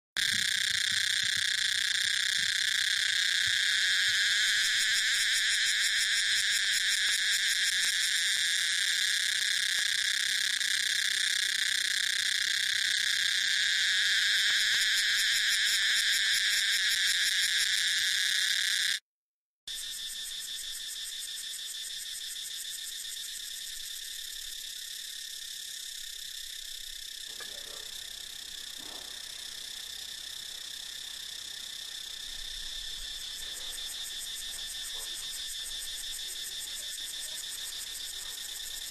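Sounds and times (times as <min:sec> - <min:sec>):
cicadas buzzing loudly: 0:00.2 - 0:19.0, 0:19.7 - 0:38.9
quieter cicada buzz: 0:00.2 - 0:19.0, 0:19.7 - 0:38.9.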